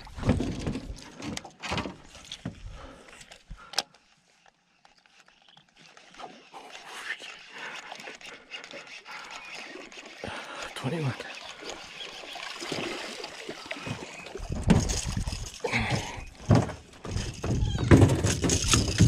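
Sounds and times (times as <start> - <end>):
fishing reel ticking: 3.1 - 16.4
fishing tackle knocks and clicks: 14.4 - 19.0.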